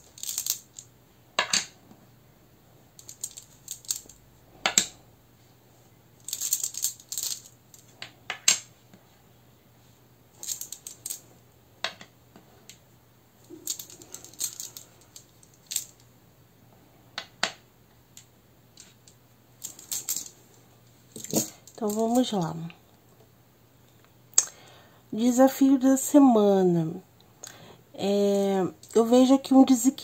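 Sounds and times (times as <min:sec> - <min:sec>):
rune pieces clattering in pouch: 0:00.0 - 0:00.9, 0:03.0 - 0:04.9, 0:06.2 - 0:08.4, 0:10.4 - 0:11.2, 0:13.5 - 0:16.0, 0:19.6 - 0:20.3, 0:21.1 - 0:22.4.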